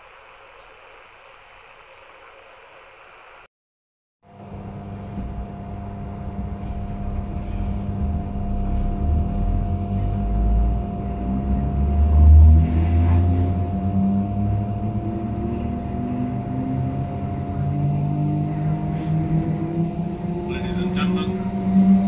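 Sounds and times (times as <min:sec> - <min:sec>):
train traction motor whine: 0:00.0 - 0:03.5, 0:04.3 - 0:22.0
train running rumble: 0:04.4 - 0:22.0.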